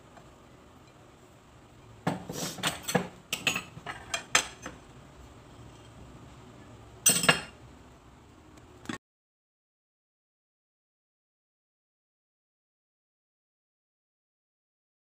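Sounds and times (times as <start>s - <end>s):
plates and utensils clinking: 2.1s - 4.8s, 7.0s - 7.6s.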